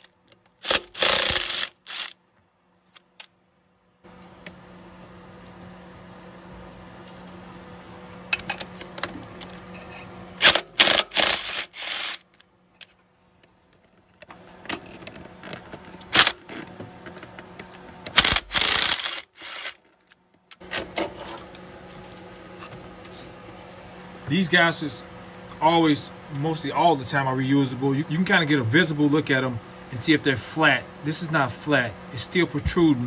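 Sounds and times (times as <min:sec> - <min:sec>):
ratchet wrench clicking: 0:00.6 - 0:02.1, 0:10.4 - 0:12.2, 0:18.2 - 0:19.8.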